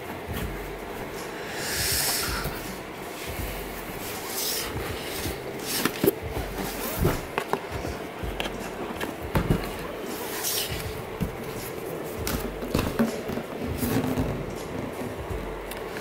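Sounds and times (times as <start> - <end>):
cardboard rustling: 2.4 - 16.0
cardboard box knocks: 9.2 - 9.8.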